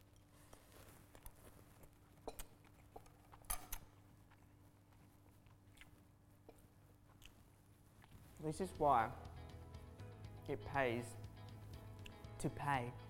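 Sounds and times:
person chewing: 0:00.1 - 0:08.4.

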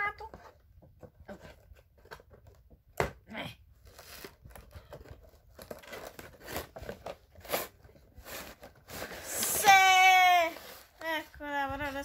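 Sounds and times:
cardboard packaging rustling and tearing: 0:03.8 - 0:12.0.

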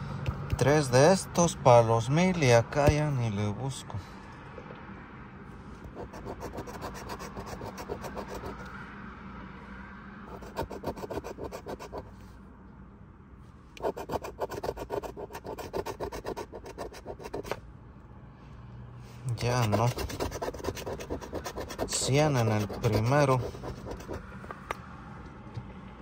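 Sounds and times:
coin scratching lottery ticket: 0:05.9 - 0:08.7, 0:10.3 - 0:12.1, 0:13.8 - 0:17.6, 0:19.3 - 0:24.2.

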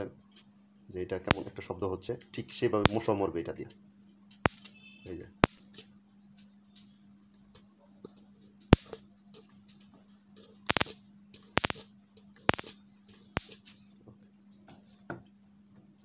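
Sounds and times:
faint steady hum: 0:00.0 - 0:16.0
electric sparks snapping and crackling: 0:01.2 - 0:01.6, 0:02.8 - 0:03.2, 0:04.4 - 0:04.7, 0:05.4 - 0:05.8, 0:08.7 - 0:09.0, 0:10.7 - 0:11.9, 0:12.5 - 0:12.8, 0:13.4 - 0:13.7.

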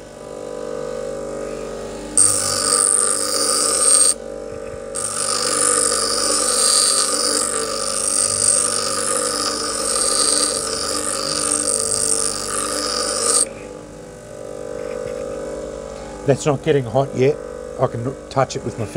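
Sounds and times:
bench grinder motor hum: 0:01.6 - 0:15.9
file grinding hiss: 0:02.2 - 0:04.2, 0:04.9 - 0:13.8.

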